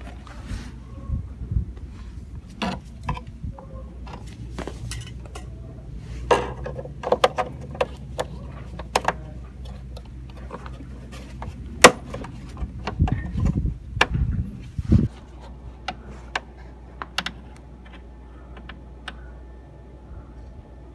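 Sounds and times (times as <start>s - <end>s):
low steady hum: 0.0s - 20.9s
metallic clinks and scrapes: 4.2s - 5.6s.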